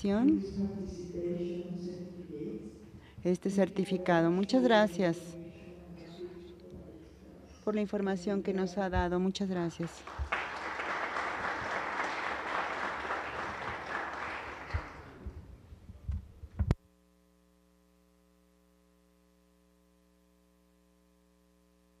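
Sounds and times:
faint electrical hum: 0.0 - 22.0
audience applause: 9.8 - 15.2.

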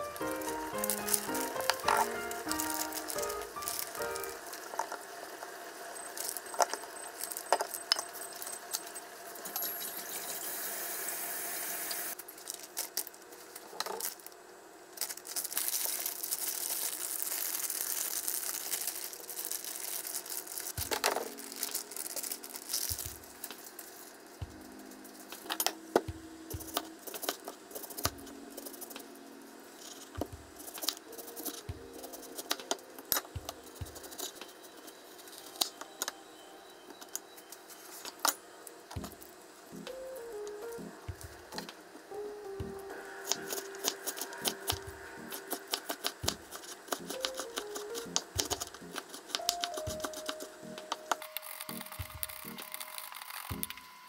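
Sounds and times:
plastic bag crinkling: 0.0 - 4.9, 15.0 - 24.3, 51.2 - 53.8.

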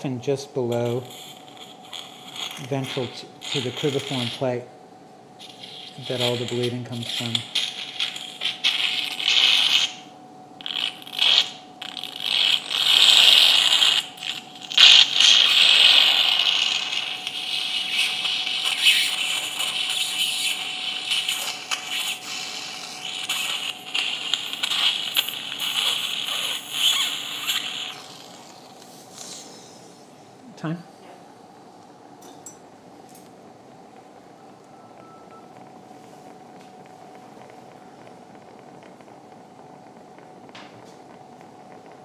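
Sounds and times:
surgical suction hissing and slurping: 0.8 - 4.6, 5.4 - 30.1.

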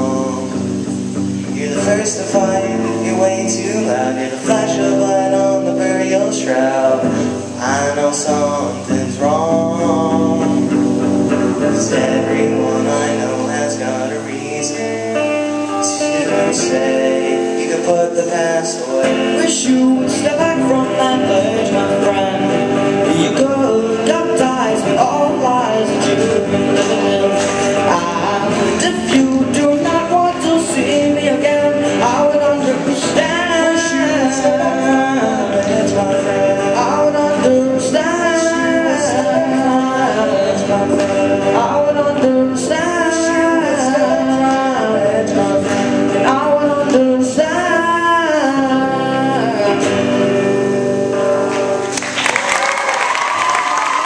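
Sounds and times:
young man singing: 0.0 - 51.9
acoustic guitars strumming: 0.0 - 54.0
applause: 51.5 - 54.0.

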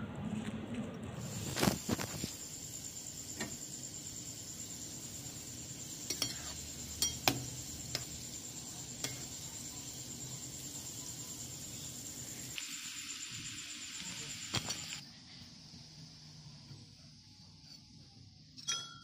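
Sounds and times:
oil sizzling: 1.2 - 15.0
metallic clinks against pan: 6.1 - 7.4, 18.6 - 19.0.

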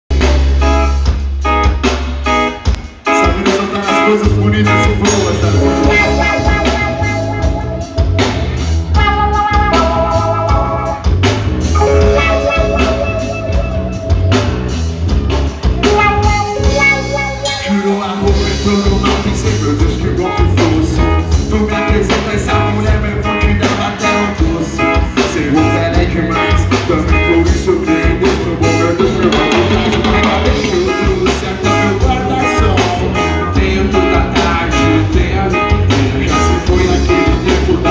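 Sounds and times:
drum kit beat: 0.1 - 37.9
electric guitar: 0.1 - 37.9
person singing: 3.0 - 8.0, 15.8 - 37.9.

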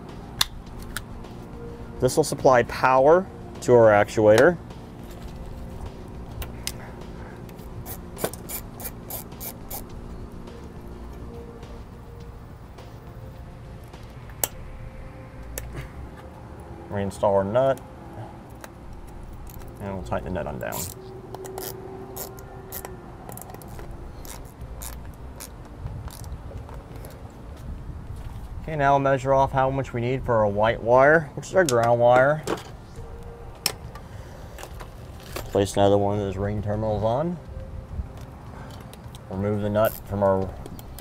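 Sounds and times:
hands handling wire: 18.5 - 28.6
hand crimper clicking: 20.7 - 26.3.

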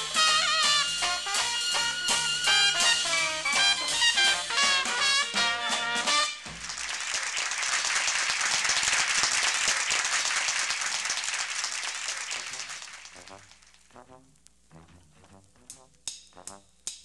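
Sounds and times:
dixieland jazz band playing: 0.0 - 6.5, 12.5 - 16.6
audience applause: 6.5 - 13.8.

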